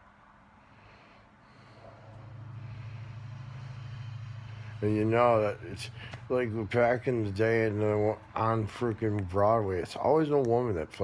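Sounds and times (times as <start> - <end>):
man sleep-talking: 4.7 - 11.0.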